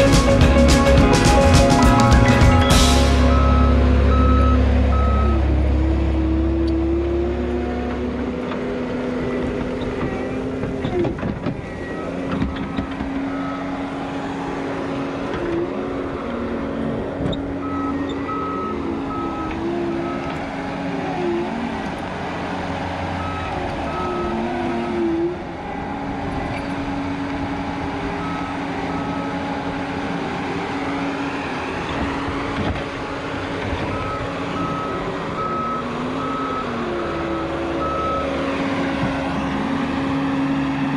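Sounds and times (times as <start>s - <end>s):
backup alarm beeping: 0.0s - 5.6s, 17.5s - 20.5s, 33.8s - 38.5s
diesel engine under load: 0.0s - 40.9s.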